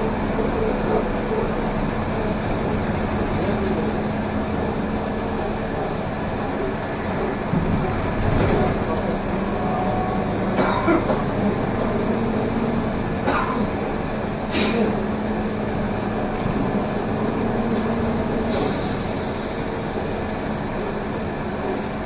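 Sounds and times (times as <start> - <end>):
trolleybus ride rumble: 0.0 - 22.0
hiss: 14.5 - 14.9, 18.4 - 20.0.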